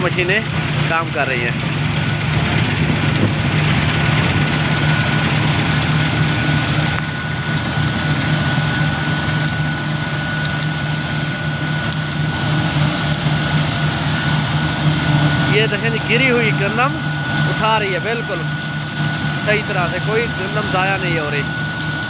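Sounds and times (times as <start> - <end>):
combine harvester engine drone: 0.0 - 22.0
steady high whine: 0.0 - 22.0.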